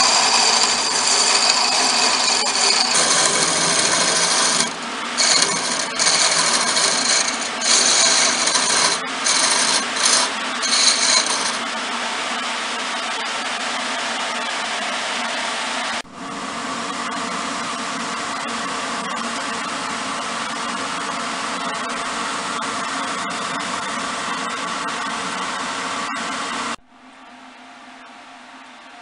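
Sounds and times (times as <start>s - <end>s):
chisel scraping on wood lathe: 0.0s - 11.7s
wood lathe running: 0.0s - 11.7s.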